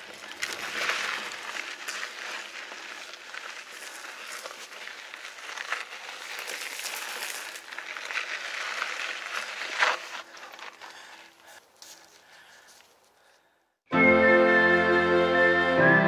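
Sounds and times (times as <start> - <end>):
bike clicks and rattles: 0.0 - 13.4
bike tyres on rocky trail: 0.0 - 13.6.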